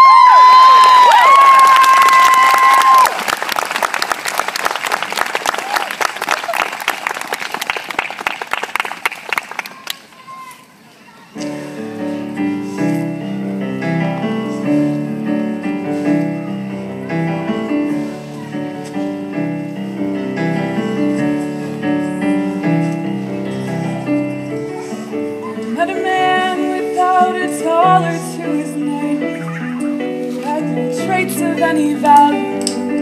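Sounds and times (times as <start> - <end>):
keyboard playing chords: 11.4 - 33.0
girl singing into microphone: 24.8 - 33.0.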